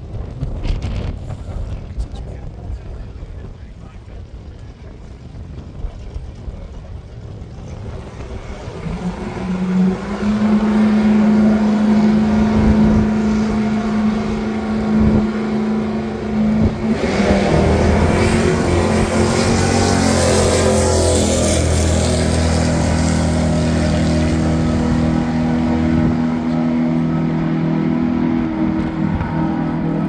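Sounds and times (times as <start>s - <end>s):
racing car engines: 7.2s - 30.0s.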